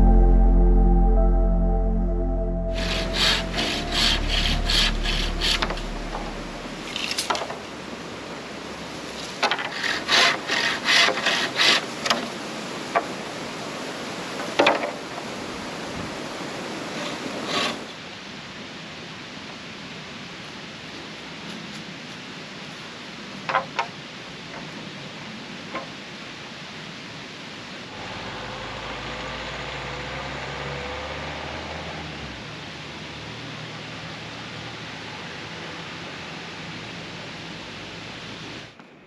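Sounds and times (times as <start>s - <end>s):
hand saw cutting bamboo: 9.4s - 12.2s.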